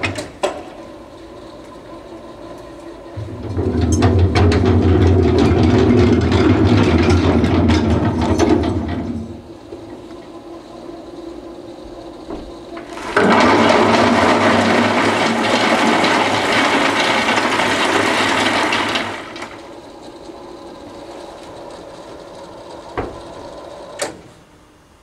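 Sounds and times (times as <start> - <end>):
coal pouring into steel cart: 3.2 - 9.4, 12.8 - 19.8.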